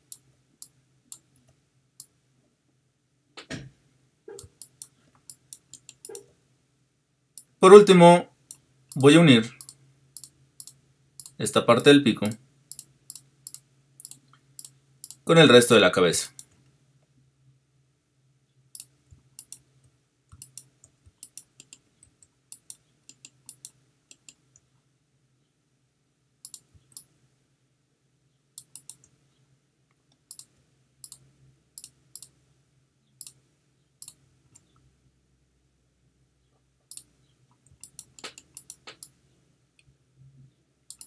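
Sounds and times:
faint low hum: 0.0 - 41.0
mouse and keyboard clicks: 4.3 - 6.3, 8.5 - 11.4, 12.3 - 15.2, 18.8 - 19.7, 20.3 - 24.6, 26.4 - 27.1, 28.6 - 29.2, 30.1 - 31.2, 31.8 - 32.4, 33.2 - 33.4, 34.0 - 34.8, 36.9 - 39.2.

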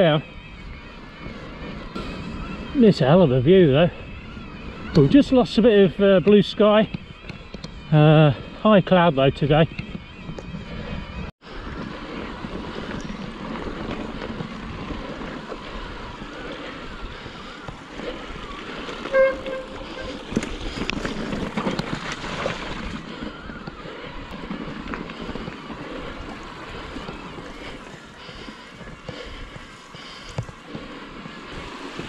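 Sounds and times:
bike rolling on rough trail: 0.0 - 32.0
wind buffeting microphone: 0.0 - 32.0
bike clicks and rattles: 0.1 - 8.6, 9.3 - 32.0
short squeak: 19.1 - 20.2.

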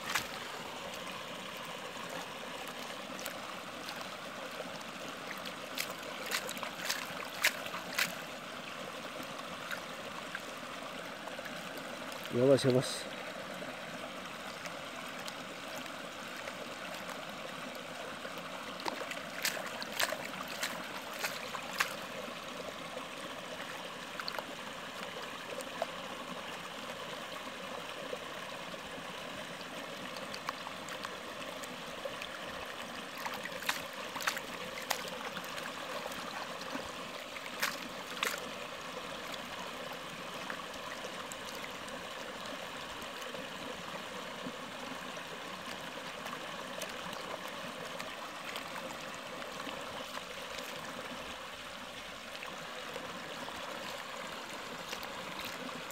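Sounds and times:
water swirling in plastic pan: 0.0 - 8.4, 18.7 - 22.6, 32.9 - 38.6, 53.3 - 55.9
creek water running: 0.0 - 55.9.

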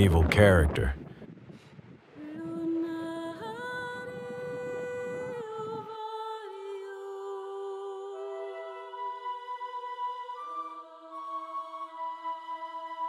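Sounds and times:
slow humming background music: 2.2 - 13.0.

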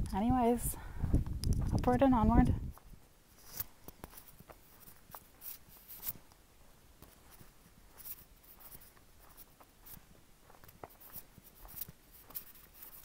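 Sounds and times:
handling rustles and clicks: 3.4 - 6.4.

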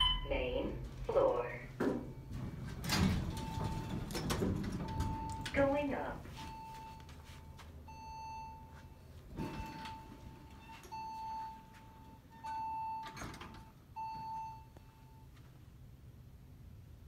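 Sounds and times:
elevator beeper tone: 0.0 - 2.3, 3.2 - 4.0, 4.8 - 15.3.

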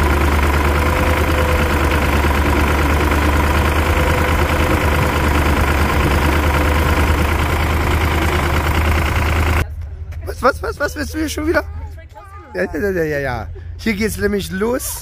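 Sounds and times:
tractor engine running: 0.0 - 11.8.

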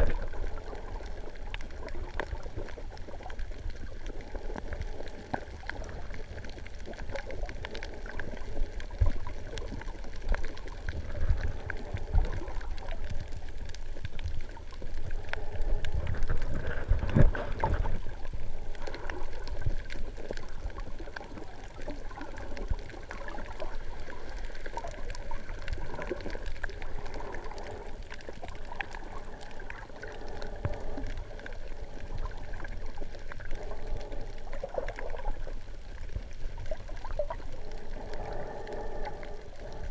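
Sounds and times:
muffled underwater sloshing: 0.0 - 39.9.

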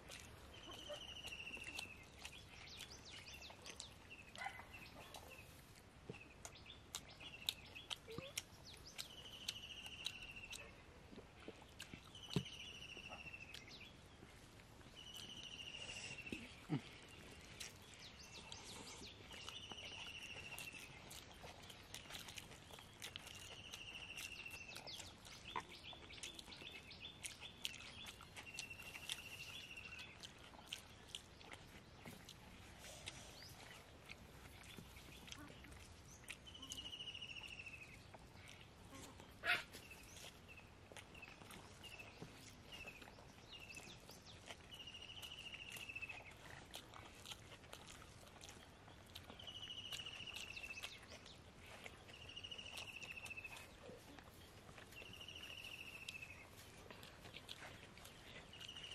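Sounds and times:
faint bird chirps: 0.4 - 10.8, 14.9 - 21.2, 32.8 - 46.4, 49.2 - 51.3.

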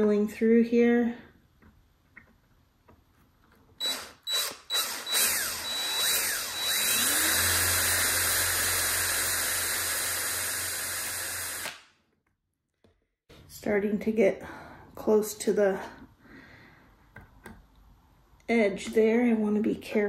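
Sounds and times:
cordless drill drilling metal: 3.8 - 11.8.

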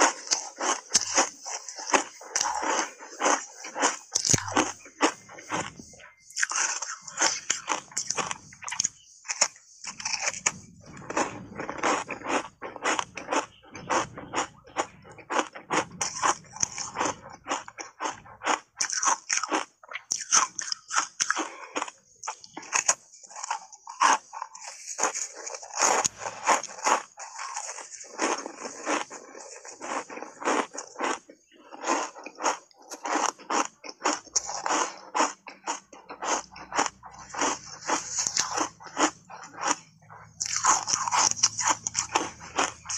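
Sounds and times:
ice crunching between teeth: 0.0 - 42.9.

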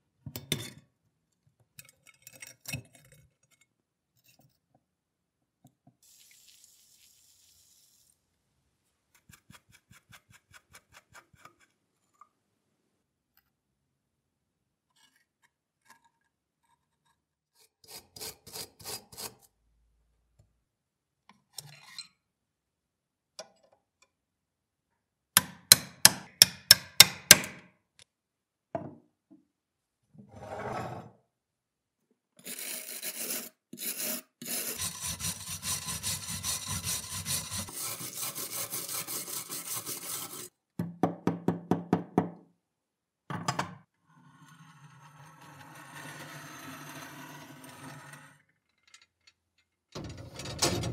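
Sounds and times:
scratchy rubbing: 32.4 - 40.5.

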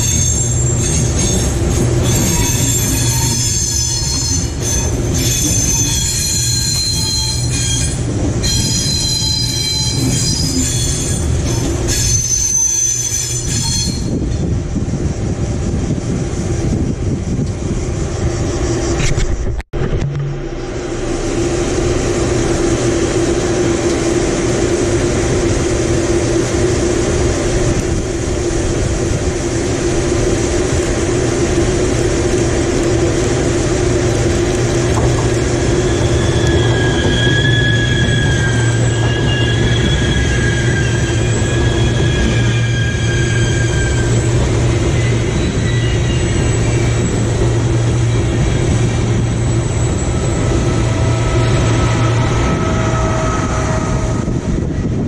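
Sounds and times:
high-pitched wheel squeals: 0.0 - 14.3, 35.6 - 54.9
lower wheel squeal: 0.0 - 14.3, 35.0 - 55.0
train running gear hum: 0.0 - 55.0.

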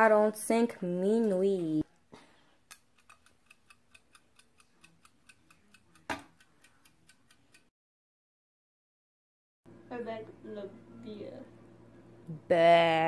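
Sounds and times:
kitchen timer ticking: 2.7 - 7.7.

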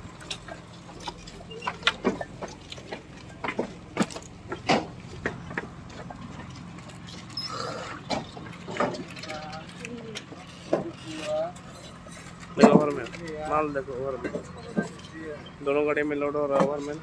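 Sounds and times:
bricks clacking on bamboo: 0.0 - 13.5.

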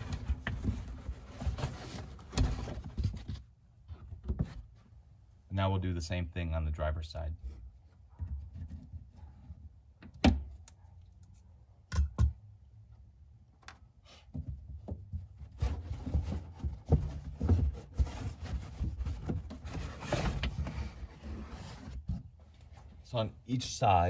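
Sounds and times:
carpet rustling and scraping: 0.0 - 5.2, 7.2 - 10.1, 14.0 - 23.3.

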